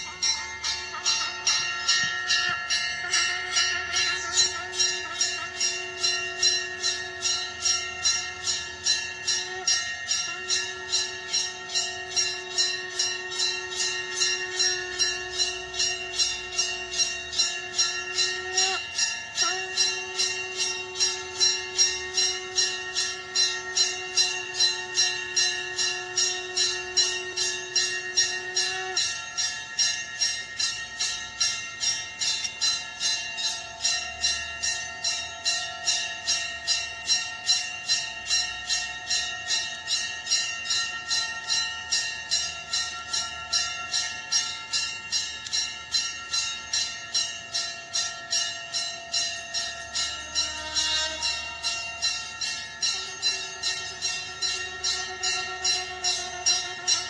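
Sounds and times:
conch shell blown: 0.0 - 30.7, 49.6 - 57.0
brass bell ringing: 0.0 - 57.0.

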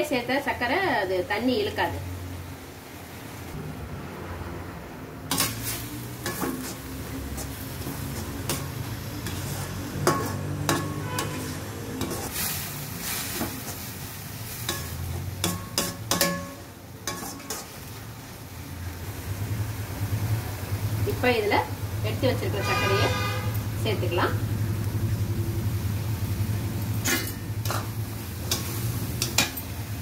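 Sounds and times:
sizzling: 0.0 - 30.0
metal ladle scraping metal pot: 5.3 - 12.5.

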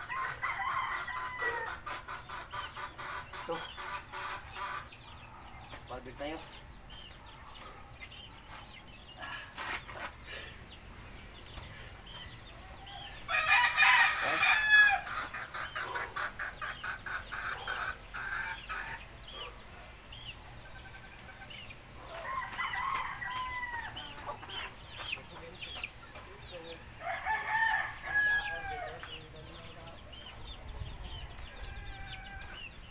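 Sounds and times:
rooster crowing: 0.0 - 1.8, 13.0 - 15.1, 22.1 - 24.3, 27.0 - 29.0
chickens clucking: 0.0 - 32.9.

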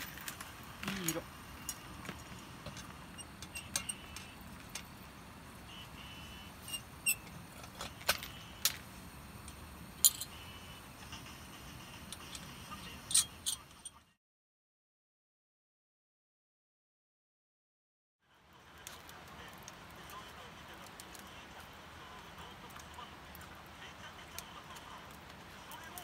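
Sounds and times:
lantern parts clinking: 9.4 - 10.4, 12.1 - 14.0.

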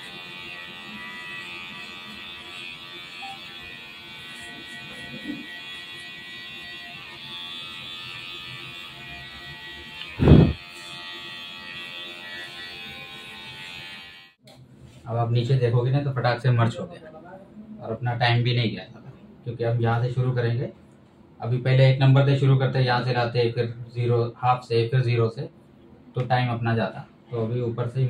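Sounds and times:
electric hair clipper buzzing: 0.0 - 14.4.

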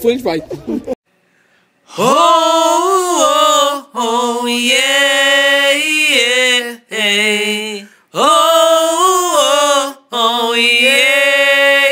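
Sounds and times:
person chanting long notes: 1.9 - 4.8.

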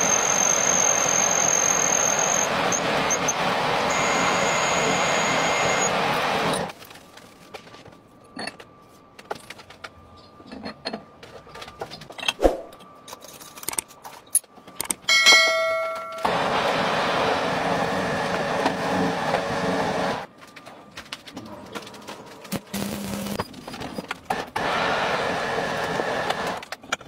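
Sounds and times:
metal lathe running: 0.0 - 6.7
steel parts clinking and knocking: 8.3 - 16.3.

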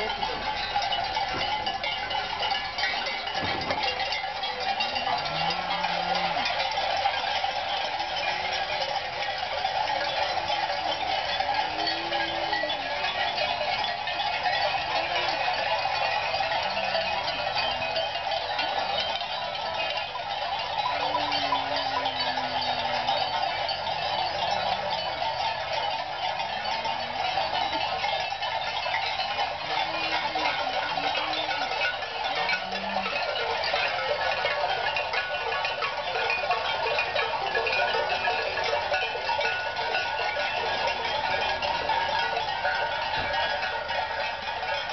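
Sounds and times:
cowbells clanking and jangling: 0.0 - 44.9
cows mooing: 1.3 - 7.2, 10.4 - 13.9, 14.5 - 17.7, 20.7 - 28.0, 29.6 - 34.5.

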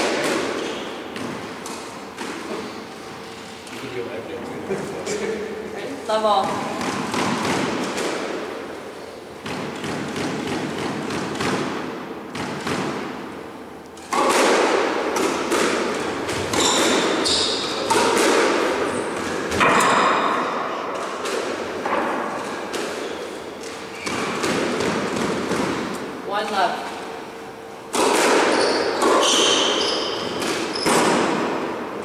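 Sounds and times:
squash ball thuds: 0.0 - 2.8, 6.3 - 8.6, 9.4 - 13.4, 14.0 - 23.1, 23.7 - 26.6, 27.9 - 32.0.

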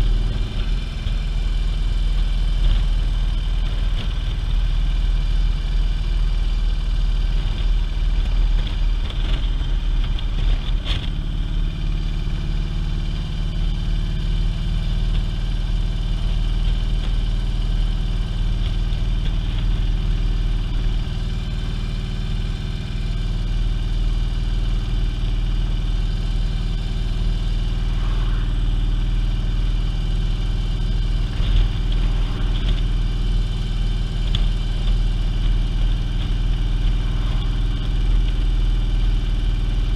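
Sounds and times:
motorcycle engine running: 0.0 - 39.9
wind rushing: 27.6 - 30.0.

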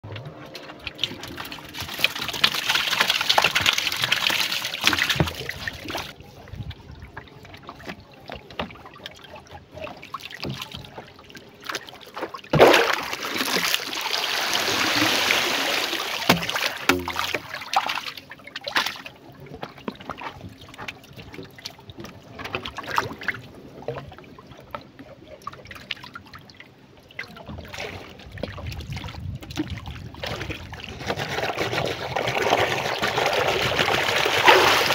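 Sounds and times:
river water splashing: 0.0 - 34.9
sharp knock on canoe: 16.3 - 17.4.

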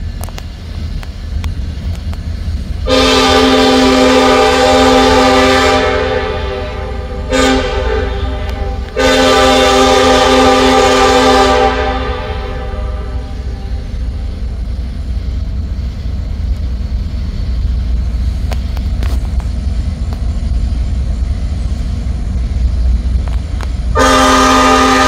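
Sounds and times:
train rumbling: 0.0 - 25.0
locomotive air horn: 2.8 - 14.3, 23.9 - 25.0.

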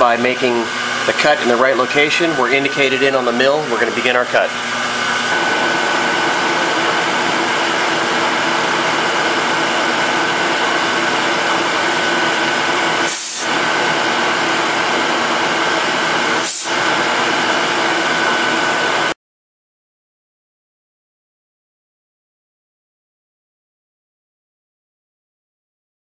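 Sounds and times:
milling machine whirring: 0.0 - 19.2.

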